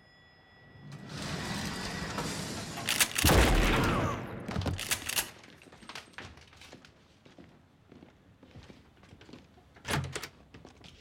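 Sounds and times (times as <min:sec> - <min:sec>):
sharp gunshots: 0:02.9 - 0:05.3
heavy gunshot blast: 0:03.2 - 0:04.6.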